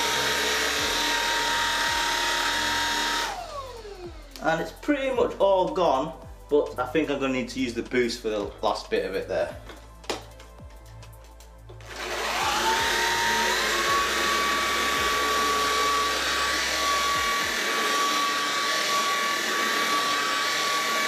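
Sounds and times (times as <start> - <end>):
vacuum cleaner motor whine: 0.0 - 4.4, 11.8 - 21.0.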